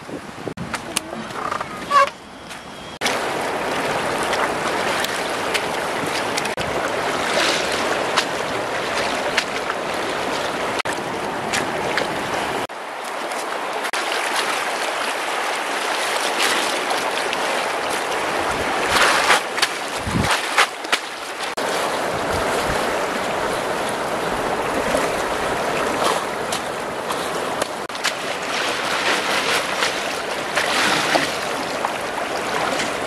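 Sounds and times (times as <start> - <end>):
wind buffeting microphone: 0.0 - 1.9, 20.0 - 20.3, 22.0 - 26.0
river water rushing: 0.0 - 33.0.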